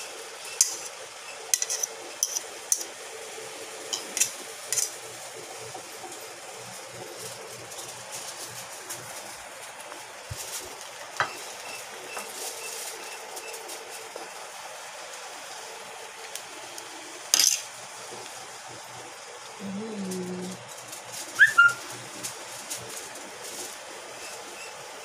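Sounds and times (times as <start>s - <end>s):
fork scraping foil tray: 0.6s - 0.9s, 1.5s - 2.9s, 3.9s - 5.0s
foil rustling: 6.8s - 14.5s, 20.2s - 24.6s.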